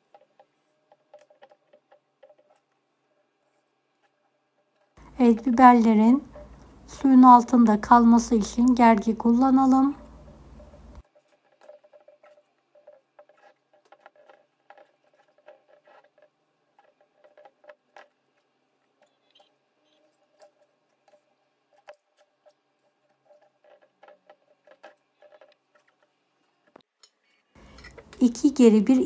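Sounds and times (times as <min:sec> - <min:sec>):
wooden skewers clicking on glass jars: 0:05.0 - 0:26.8.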